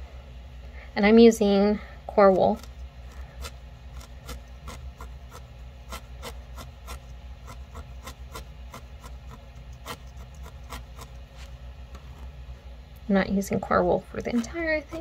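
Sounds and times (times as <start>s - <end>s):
felting needle poking wool: 2.2s - 12.3s.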